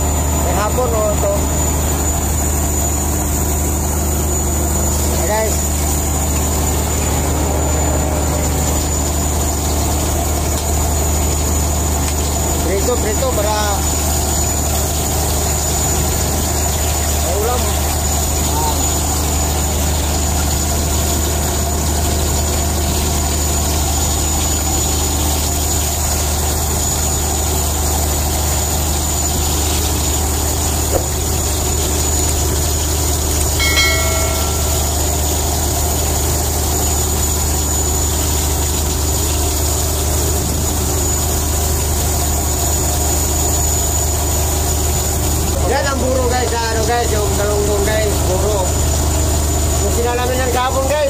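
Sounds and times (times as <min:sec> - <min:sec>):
boat engine droning: 0:00.0 - 0:23.8, 0:29.5 - 0:41.6
short ringing tone: 0:33.6 - 0:35.8.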